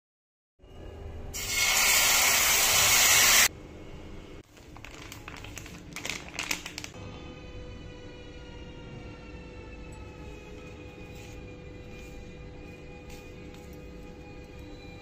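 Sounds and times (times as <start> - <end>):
plastic packet crinkling: 4.5 - 7.0.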